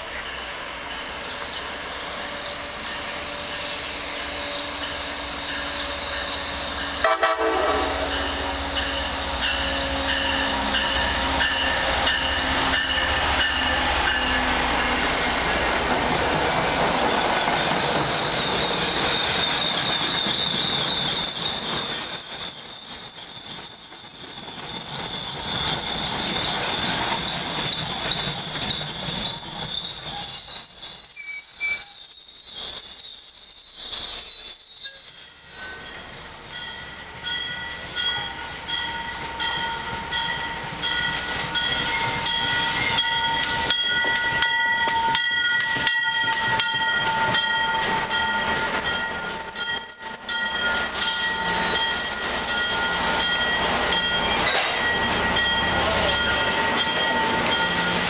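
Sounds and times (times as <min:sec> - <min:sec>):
train wheels rushing on rail: 0:00.0 - 0:58.0
high wheel squeal: 0:16.0 - 0:36.2, 0:40.8 - 0:58.0.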